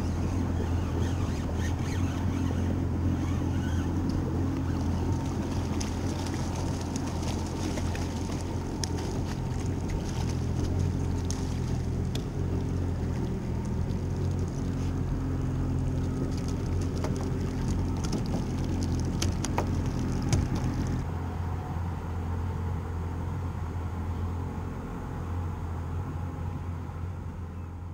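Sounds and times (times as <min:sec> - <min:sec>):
outboard motor running: 0:00.0 - 0:21.1
water and wind rushing: 0:00.0 - 0:21.1.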